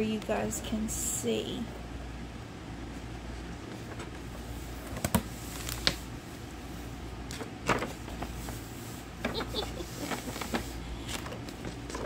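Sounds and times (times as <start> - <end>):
tissue paper rustling: 7.6 - 12.0.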